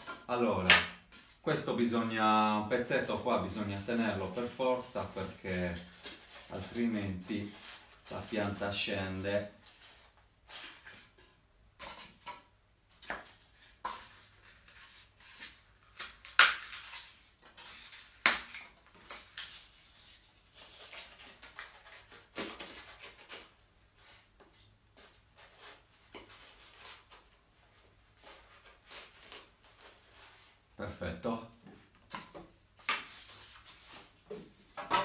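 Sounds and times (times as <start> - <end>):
leaves rustling: 1.6 - 9.8.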